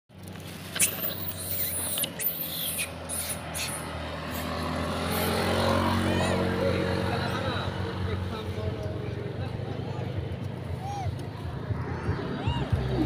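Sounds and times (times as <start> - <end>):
low engine hum: 0.1 - 13.0
monkeys squeaking: 0.7 - 6.5, 9.7 - 11.4.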